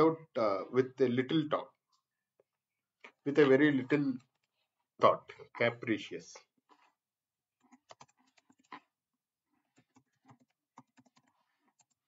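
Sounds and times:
typing on a computer keyboard: 7.6 - 8.8, 9.7 - 12.0.

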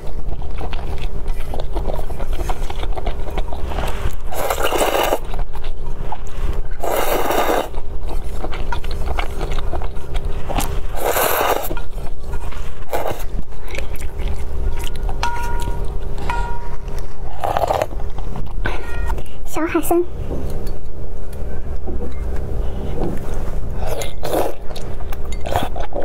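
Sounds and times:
chewing and lip noises: 0.0 - 26.0
person slurping noodle soup: 3.7 - 5.4, 6.8 - 8.3, 10.5 - 11.9, 12.9 - 13.4, 17.3 - 17.9, 23.8 - 24.6.

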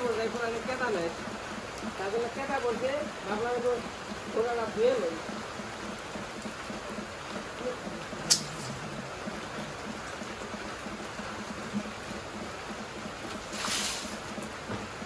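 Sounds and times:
water splashing from bucket: 11.8 - 15.0.

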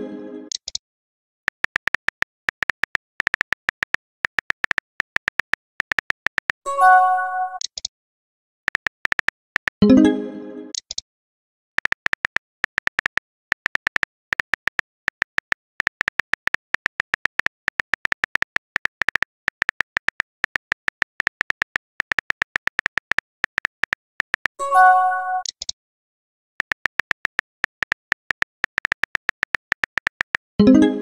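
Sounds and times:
phone keyboard typing clicks: 1.5 - 6.6, 8.7 - 9.8, 11.8 - 24.6, 26.5 - 30.6
message-sent chime: 6.7 - 7.6, 24.6 - 25.5.

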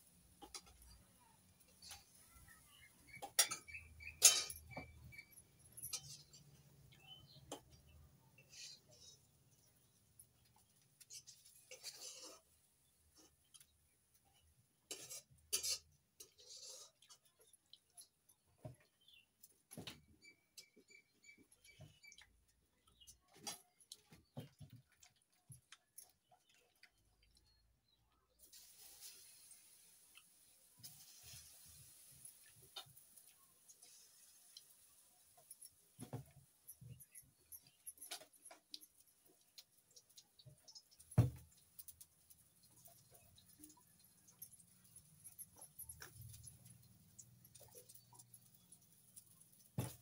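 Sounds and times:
fingers clinking on steel plate: 3.1 - 6.7
scrape on steel plate: 11.1 - 12.5, 14.9 - 17.2.

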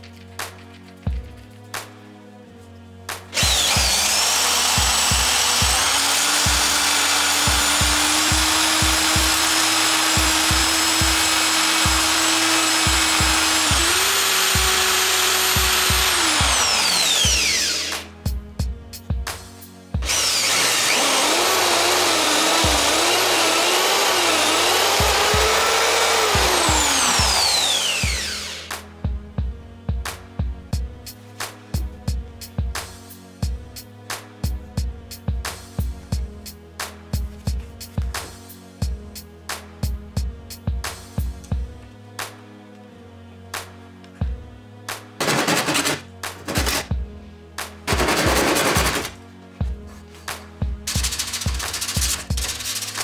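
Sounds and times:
background music with steady beat: 0.0 - 53.0
electric drill whining: 3.3 - 18.1, 20.0 - 28.7.

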